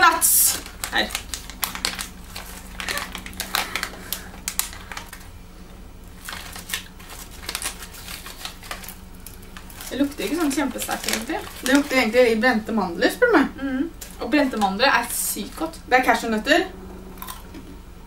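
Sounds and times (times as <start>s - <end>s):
plastic bag crinkling: 0.0s - 5.3s, 6.0s - 12.6s.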